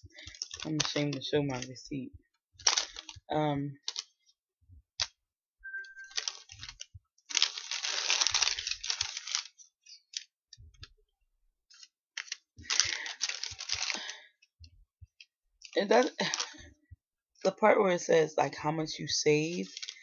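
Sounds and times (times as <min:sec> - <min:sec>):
paper receipt rustling: 0:00.0 - 0:01.9, 0:02.6 - 0:03.2, 0:05.7 - 0:10.3, 0:11.7 - 0:14.3, 0:15.6 - 0:16.6, 0:19.4 - 0:20.0.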